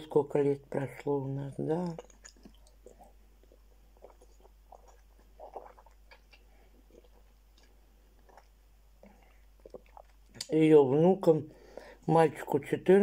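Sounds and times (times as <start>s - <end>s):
low electrical hum: 0.0s - 13.0s
person chewing food: 0.7s - 10.5s.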